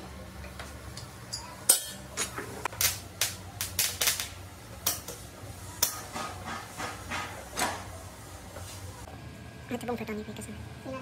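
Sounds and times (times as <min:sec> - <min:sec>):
welding arc crackling on steel: 0:02.6 - 0:07.0.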